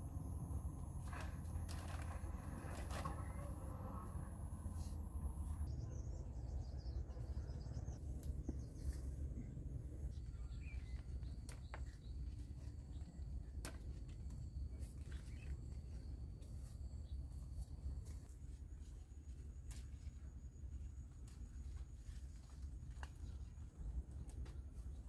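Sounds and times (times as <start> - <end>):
low rumble: 0.0 - 21.4
bird chirp: 5.6 - 13.2
bean pods picked clicks and rustles: 10.6 - 25.0.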